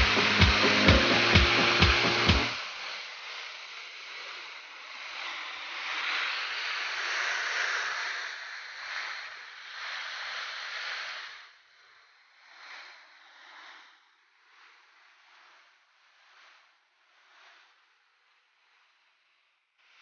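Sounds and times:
waterfall rushing: 0.0s - 2.6s.

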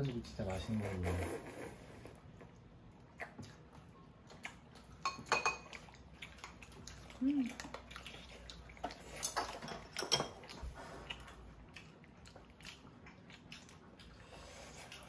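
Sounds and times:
chewing and mouth smacks: 2.1s - 15.0s.

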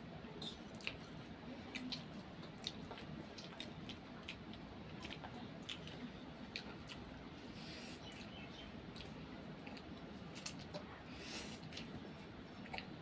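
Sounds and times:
wet eating smacks: 1.7s - 4.4s.

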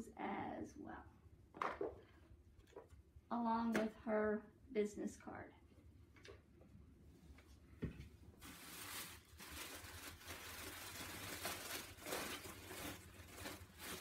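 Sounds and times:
plastic wrapping crinkling: 8.4s - 14.0s.

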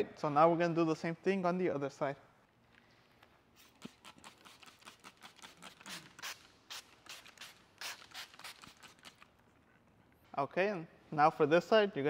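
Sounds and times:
spray bottle spritzing: 3.5s - 9.4s.

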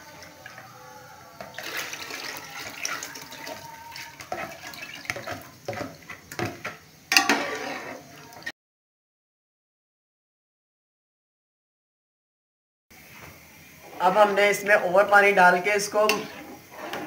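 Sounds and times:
batter pouring and splashing: 1.5s - 6.5s
spoon scraping a steel bowl: 1.6s - 8.4s, 16.0s - 17.0s.

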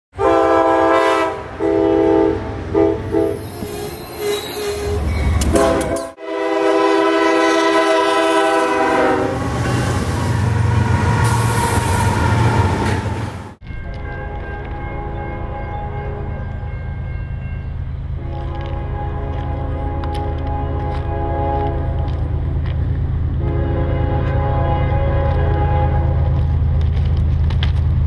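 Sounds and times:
locomotive air horn blasts: 0.2s - 3.5s, 5.4s - 12.8s, 13.9s - 16.4s, 18.2s - 22.4s, 23.4s - 26.5s
train passing rumble: 0.2s - 28.0s.

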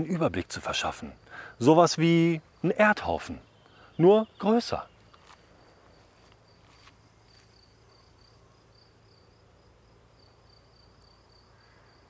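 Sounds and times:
faint insect chirping: 0.0s - 12.0s.

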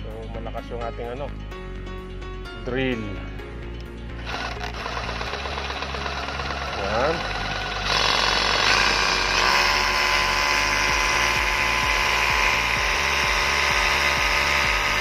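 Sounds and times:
hammer drill boring into concrete: 4.2s - 15.0s.

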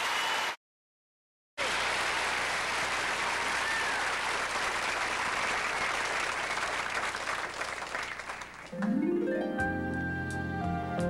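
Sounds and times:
audience applauding: 1.6s - 9.0s.

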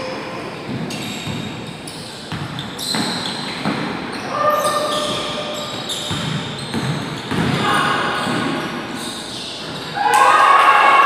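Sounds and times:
shoe squeaks: 0.0s - 10.1s
voices in a large hall: 0.0s - 11.0s
basketball bouncing on wooden court: 0.7s - 8.8s.

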